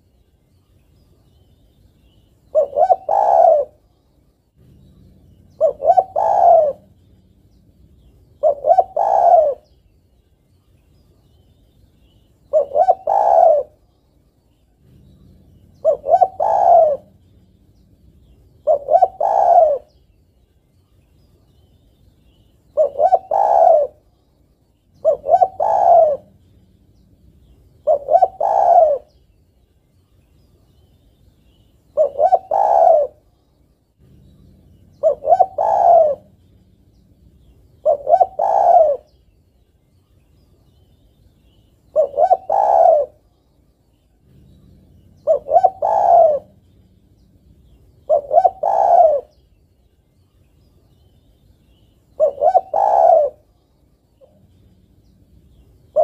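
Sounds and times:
dove cooing: 0:02.5 - 0:04.0, 0:04.6 - 0:09.8, 0:12.4 - 0:13.9, 0:14.7 - 0:20.0, 0:22.6 - 0:24.2, 0:24.9 - 0:29.2, 0:31.5 - 0:33.4, 0:34.0 - 0:39.2, 0:41.4 - 0:43.4, 0:44.1 - 0:49.5, 0:51.7 - 0:56.0.

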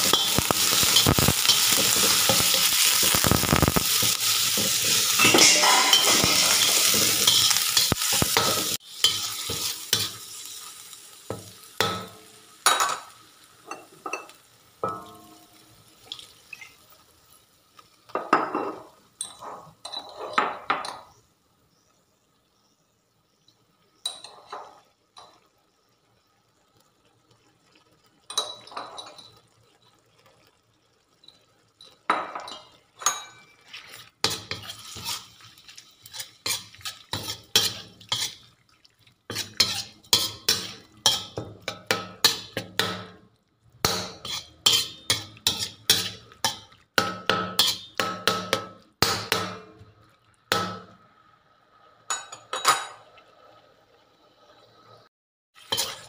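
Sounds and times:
metal spatula scraping a wok: 0:00.0 - 0:10.6, 0:19.4 - 0:20.4, 0:33.4 - 0:38.5, 0:39.3 - 0:41.4, 0:43.9 - 0:46.6, 0:47.6 - 0:47.9, 0:55.6 - 0:56.0.

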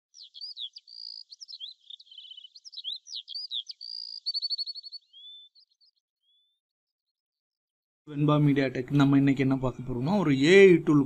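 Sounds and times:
bird-like chirping and whistles: 0:00.1 - 0:06.6.

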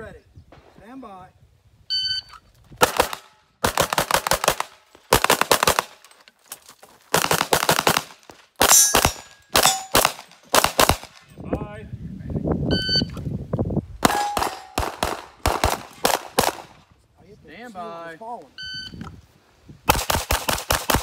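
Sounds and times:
pistol shots: 0:02.8 - 0:06.0, 0:07.1 - 0:11.2, 0:14.0 - 0:16.7, 0:19.9 - 0:21.0
metallic ring: 0:08.7 - 0:10.0.

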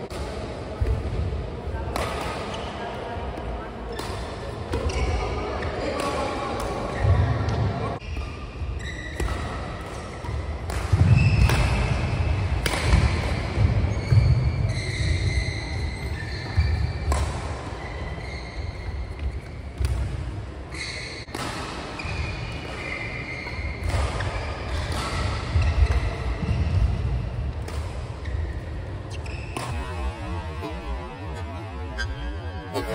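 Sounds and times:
rackets hitting shuttlecock: 0:09.0 - 0:14.2, 0:16.5 - 0:17.6, 0:19.2 - 0:20.2, 0:21.2 - 0:32.9.

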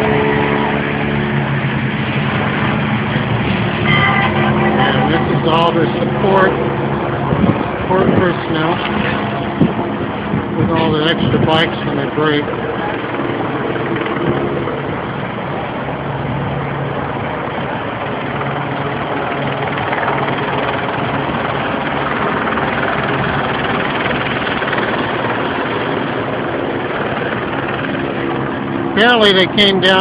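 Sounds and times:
cars passing: 0:00.0 - 0:19.8
helicopter drone overhead: 0:00.0 - 0:30.0.

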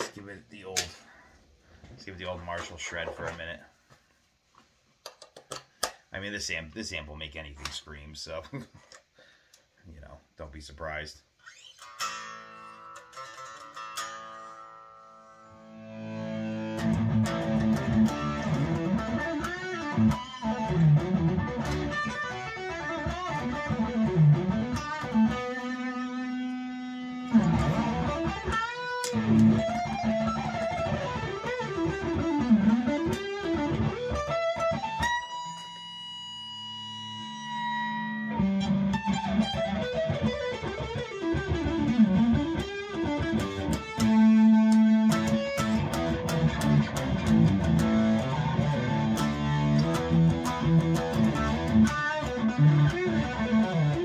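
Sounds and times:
overdriven electric guitar lead: 0:11.4 - 0:54.0.

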